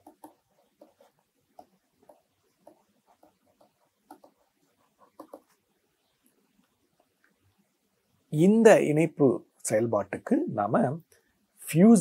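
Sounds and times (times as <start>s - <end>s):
stylus tapping on writing tablet: 0.0s - 5.6s.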